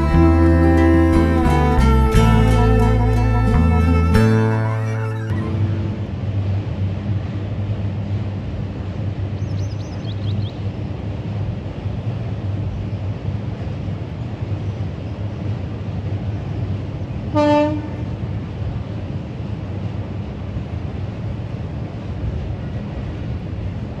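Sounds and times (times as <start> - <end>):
short horn blast: 0.0 - 6.2, 17.4 - 18.1.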